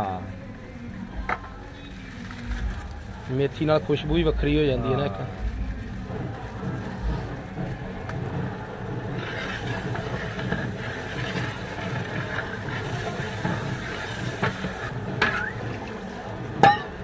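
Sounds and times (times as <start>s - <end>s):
thick sauce bubbling: 5.2s - 17.0s.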